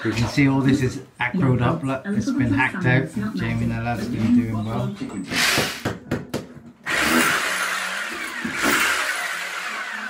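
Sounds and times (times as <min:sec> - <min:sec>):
power tool motor running: 0:06.8 - 0:10.0.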